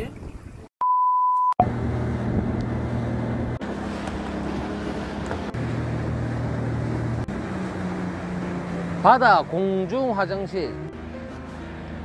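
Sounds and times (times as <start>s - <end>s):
short beep: 0.8s - 1.7s
outboard motor running: 1.6s - 12.0s
wind on microphone: 2.2s - 2.8s
water rushing past hull: 2.2s - 12.0s.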